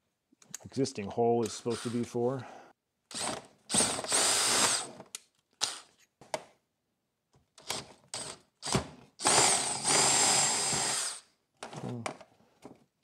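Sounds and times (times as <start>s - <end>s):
cordless drill boring plastic: 1.6s - 2.0s, 3.1s - 5.0s, 7.6s - 11.2s.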